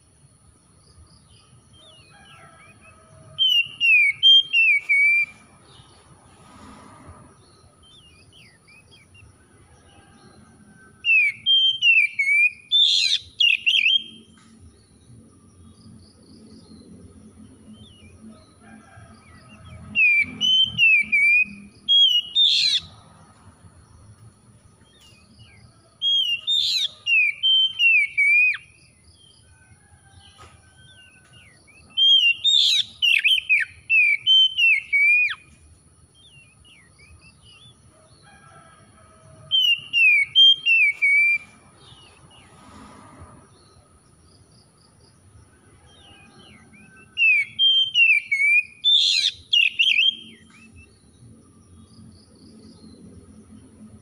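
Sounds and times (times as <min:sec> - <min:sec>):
bird singing whistled phrases: 0:03.4 - 0:05.3, 0:11.1 - 0:14.2, 0:20.0 - 0:22.9, 0:26.1 - 0:28.6, 0:32.0 - 0:35.4, 0:47.2 - 0:50.4.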